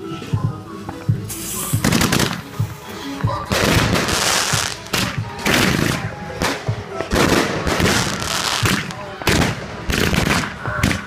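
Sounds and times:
hissing crackling firework bursts: 1.2s - 2.9s, 3.5s - 11.0s
firework shots: 1.3s - 2.6s, 3.5s - 11.0s.

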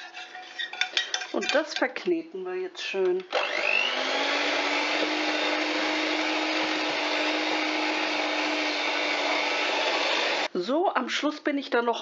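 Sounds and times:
electric hand mixer whine: 3.3s - 10.5s.

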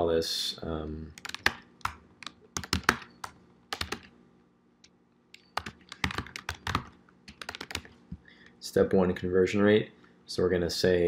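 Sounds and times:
typing on computer keyboard: 1.2s - 4.1s, 5.4s - 7.9s.

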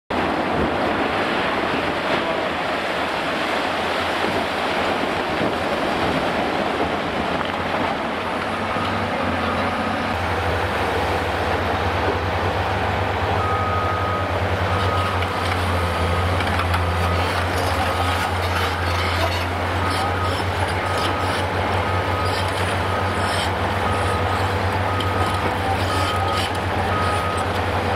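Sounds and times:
demolition site noise: 0.1s - 27.9s
excavator diesel engine droning: 0.2s - 27.9s
short high beeps: 23.8s - 27.5s.

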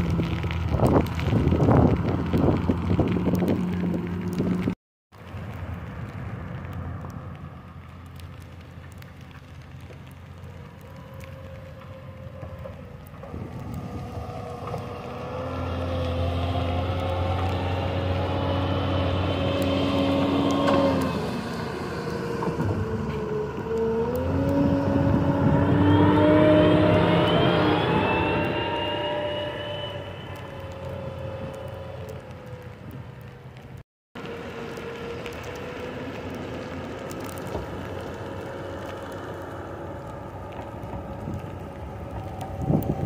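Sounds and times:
wheel loader diesel engine: 0.0s - 43.0s
rising whine: 10.8s - 33.1s, 34.2s - 43.0s.

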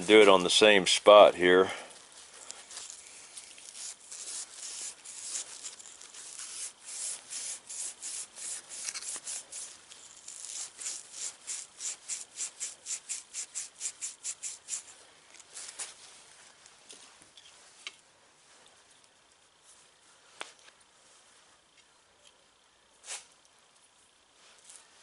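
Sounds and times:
plastic scrubbing on abrasive pad: 3.6s - 14.9s.

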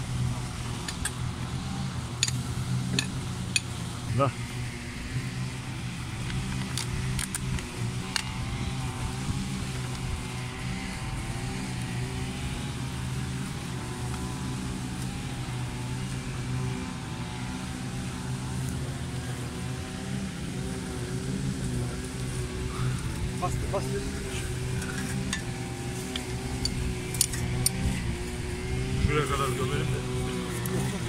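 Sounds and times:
brush cutters running: 0.0s - 31.0s.

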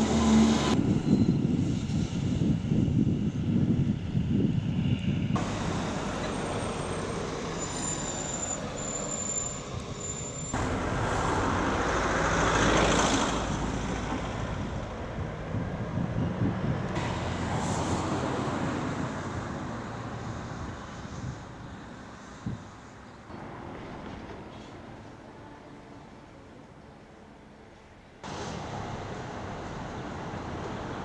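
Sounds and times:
vehicle passing close by: 0.0s - 1.0s, 4.8s - 8.8s, 10.6s - 22.3s
street traffic: 0.0s - 31.0s.

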